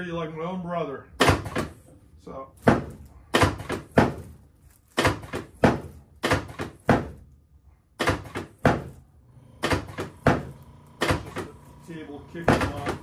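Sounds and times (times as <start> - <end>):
table sections dropping thunks: 9.6 - 11.6.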